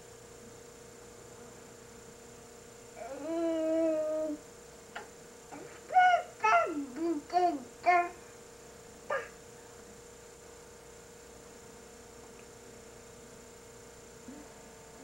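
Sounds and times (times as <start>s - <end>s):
steady electrical hum: 0.0s - 15.0s
baby squealing: 5.6s - 6.9s, 9.1s - 9.3s.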